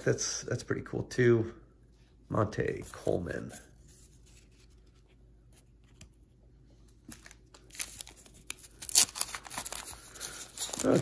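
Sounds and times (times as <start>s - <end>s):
wax paper wrapper crinkling and tearing: 6.9s - 11.0s.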